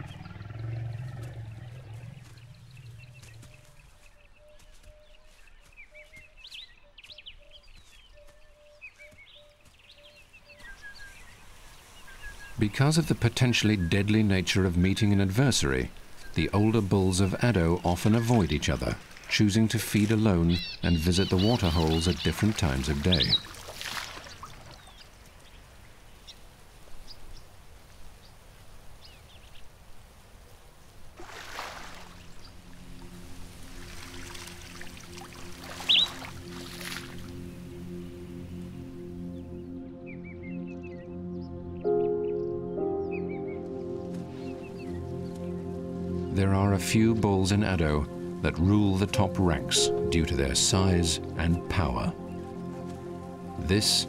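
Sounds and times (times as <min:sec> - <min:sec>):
soft music tones: 0:00.0 - 0:23.5, 0:31.2 - 0:54.0
wild birds chirping and calling: 0:00.0 - 0:29.8, 0:34.1 - 0:54.0
outdoor ambience: 0:00.0 - 0:54.0
bird chirps: 0:20.2 - 0:23.6, 0:35.8 - 0:36.3, 0:39.3 - 0:46.9
water gushing from elephant trunk: 0:21.9 - 0:24.9, 0:31.2 - 0:32.2.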